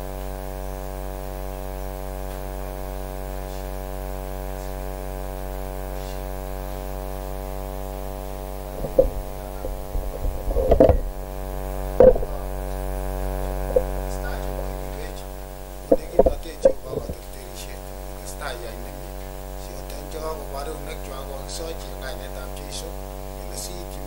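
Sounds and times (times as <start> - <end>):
electrical mains hum: 0.0 - 24.0
thumps and knocks: 8.7 - 11.2, 11.9 - 12.5, 13.7 - 14.0, 15.8 - 17.2.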